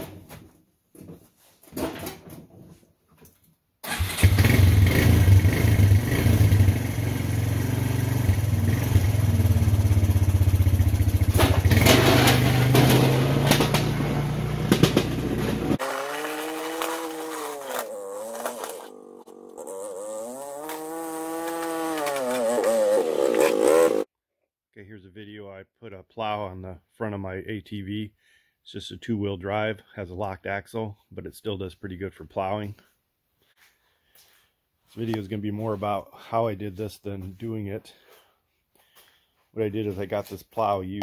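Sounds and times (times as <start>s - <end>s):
atv engine running: 4.2s - 24.0s
distant engine revving: 4.4s - 24.1s
clattering: 11.3s - 14.0s.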